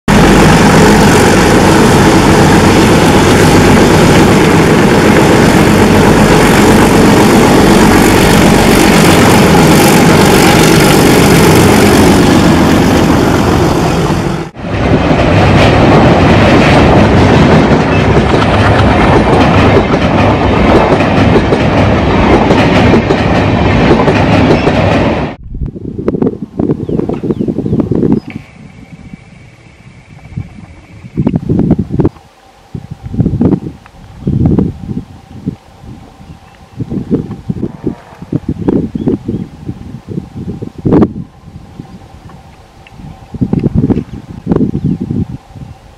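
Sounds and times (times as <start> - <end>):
diesel locomotives chugging: 0.1 - 25.4
train wheels clattering on rails: 0.1 - 25.4.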